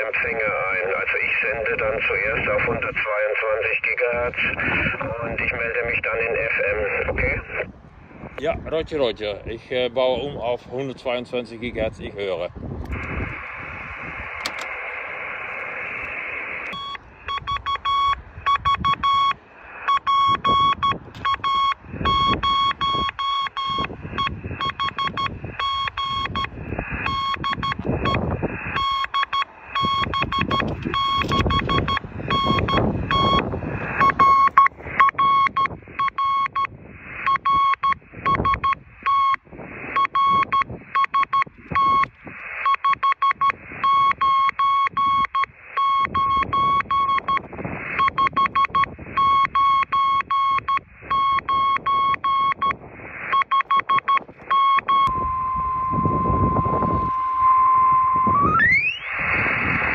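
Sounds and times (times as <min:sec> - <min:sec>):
radio receiver hiss: 0:00.0 - 0:08.6, 0:09.3 - 0:23.1, 0:23.7 - 0:55.2, 0:58.2 - 0:59.9
morse code tone: 0:16.7 - 0:36.7, 0:37.3 - 0:39.4, 0:40.0 - 0:59.9.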